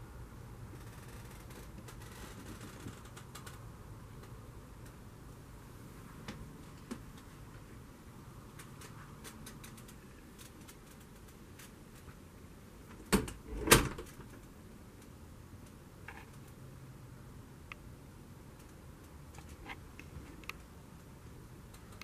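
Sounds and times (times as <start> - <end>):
small ticks: 18.6 - 22.0.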